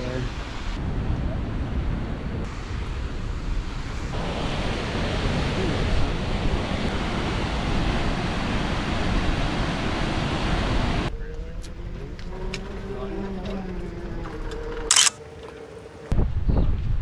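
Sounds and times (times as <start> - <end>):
steady rushing noise: 0.0 - 11.1.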